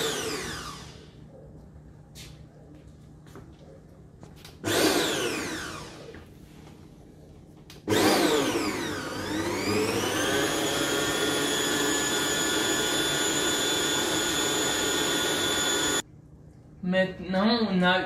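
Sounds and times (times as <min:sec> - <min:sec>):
stand mixer motor whining: 0:00.0 - 0:01.1, 0:04.6 - 0:06.3, 0:07.8 - 0:16.0.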